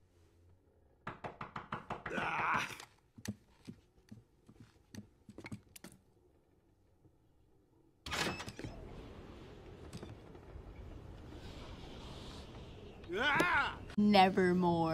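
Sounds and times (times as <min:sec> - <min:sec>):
knocking on wooden door: 0:01.0 - 0:02.2.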